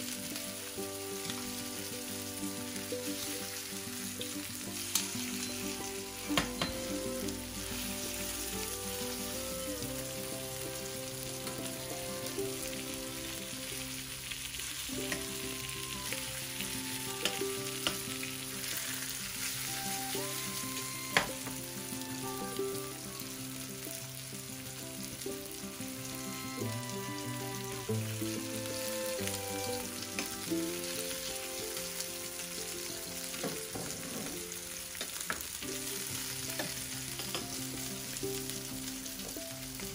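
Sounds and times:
fish sizzling in frying pan: 0.0 - 39.9
metal tongs clicking on pan: 17.2 - 18.0, 36.6 - 37.6.

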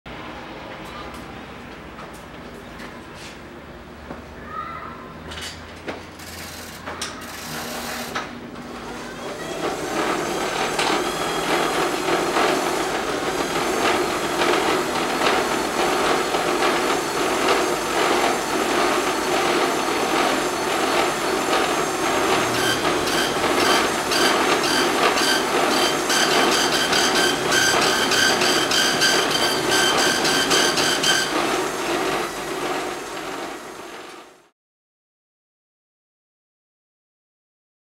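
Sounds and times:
dot-matrix printer rattling: 9.6 - 33.4.

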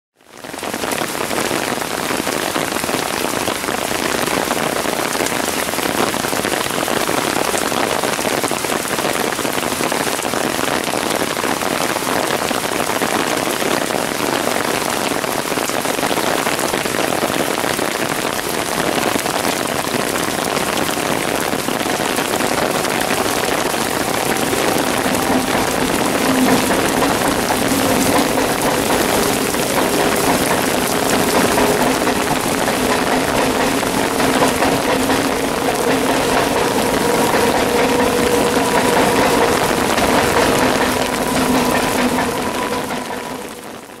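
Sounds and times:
torrential rain hissing: 0.2 - 44.0
electric train humming: 19.8 - 44.0.

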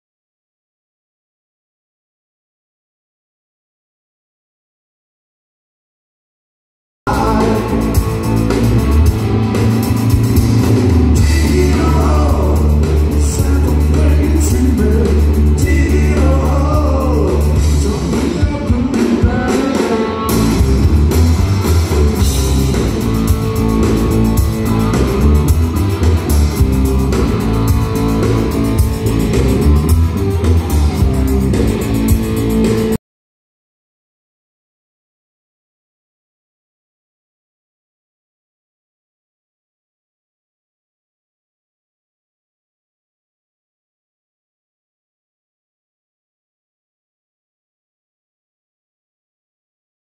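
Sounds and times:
live rock band playing: 7.1 - 33.0.

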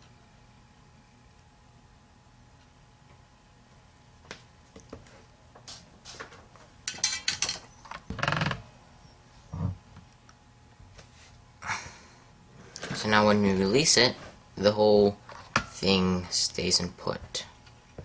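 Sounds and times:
tools clicking and knocking: 6.9 - 7.7.

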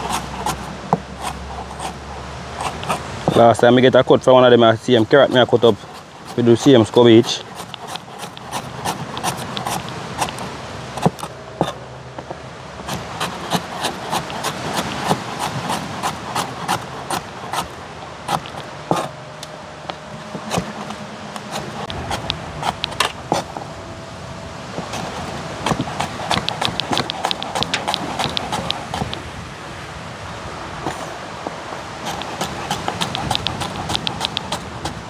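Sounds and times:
knife chopping on cutting board: 5.3 - 11.8, 12.9 - 19.1, 20.3 - 23.5, 24.8 - 29.2, 32.0 - 35.0.

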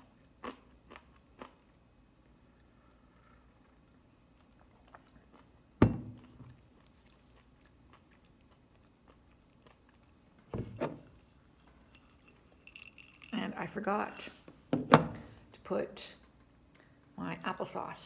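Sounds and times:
chewing crunch: 0.0 - 2.8, 3.4 - 10.5.

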